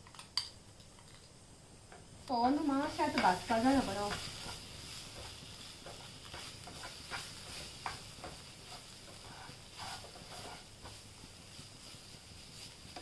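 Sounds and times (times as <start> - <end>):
faint sizzle: 0.0 - 13.0
wooden spatula scraping a pan: 2.7 - 13.0.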